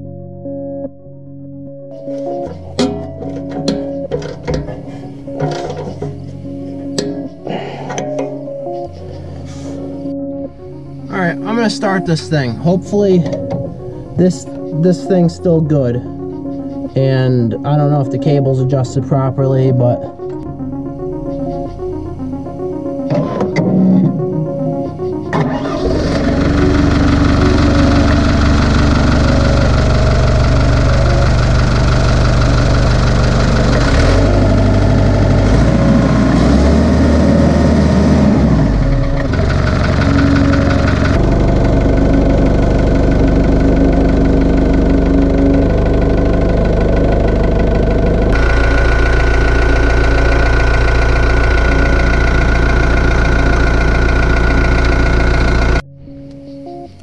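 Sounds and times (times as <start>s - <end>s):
excavator diesel engine revving: 20.4s - 55.8s.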